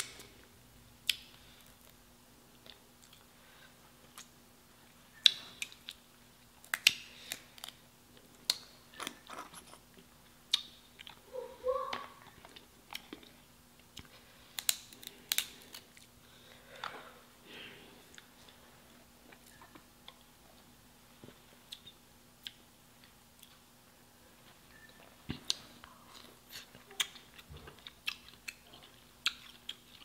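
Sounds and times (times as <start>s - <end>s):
chewing: 24.7s - 30.0s.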